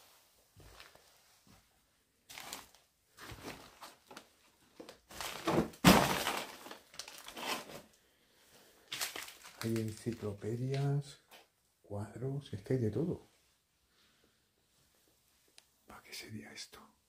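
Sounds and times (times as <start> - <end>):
debris knocking and scraping: 5.1 - 7.8
loud sharp crash: 5.8 - 6.4.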